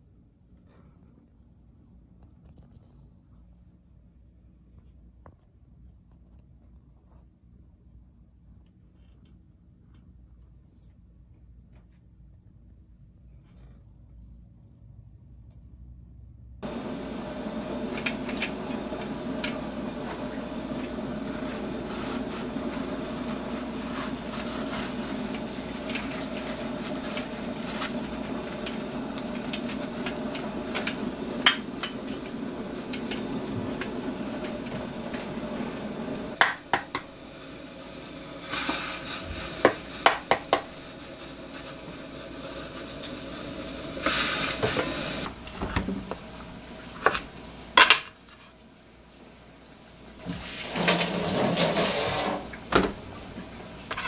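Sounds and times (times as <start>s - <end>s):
paper towel rustling: 16.6s - 36.4s.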